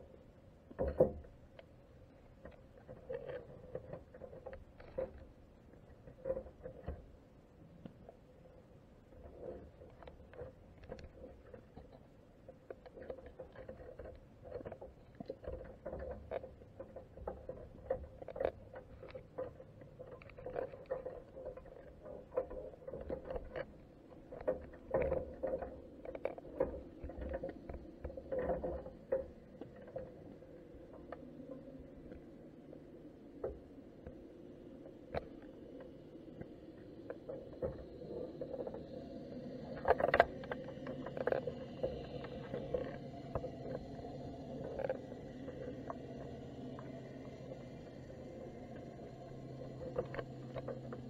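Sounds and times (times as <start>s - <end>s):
low rumble of moving water: 0.0s - 51.0s
soft underwater clicks and taps: 0.1s - 8.2s, 9.1s - 51.0s.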